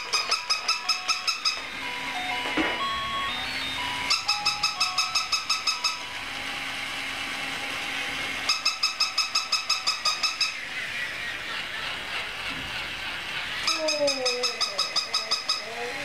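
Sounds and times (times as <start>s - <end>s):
electronic toy rapid beeps: 0.0s - 6.5s, 8.4s - 10.7s, 13.6s - 16.0s.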